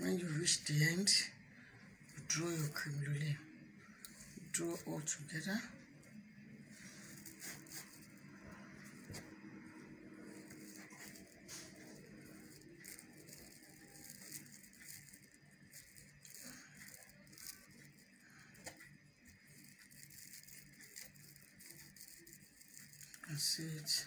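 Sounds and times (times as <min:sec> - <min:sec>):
light crackles: 0:06.7 - 0:24.0
stiff mesh rustling and crinkling: 0:10.2 - 0:18.2.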